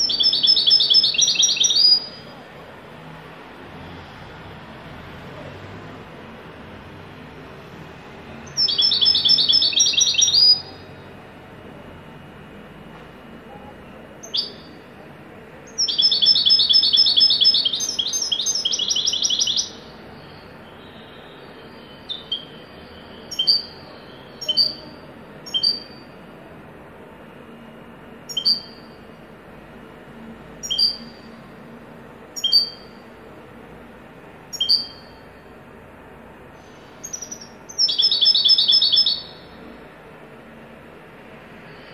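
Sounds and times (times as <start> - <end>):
goldfinch singing: 0.0 - 2.3, 8.5 - 10.8, 14.2 - 14.7, 15.7 - 19.9, 28.3 - 28.8, 30.6 - 31.2, 32.4 - 32.9, 34.5 - 35.1, 37.0 - 39.5.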